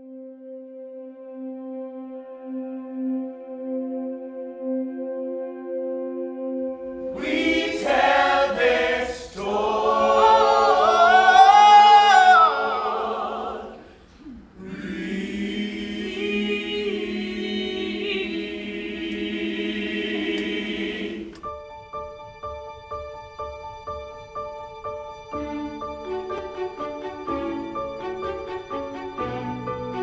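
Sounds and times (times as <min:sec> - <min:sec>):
choir singing: 0:06.6 - 0:21.4.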